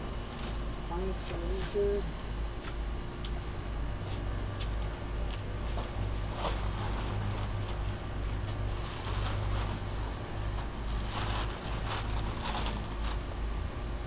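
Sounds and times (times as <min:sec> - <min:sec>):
steady low rumble: 0:00.0 - 0:14.0
plastic tarp rustling and crinkling: 0:05.7 - 0:13.4.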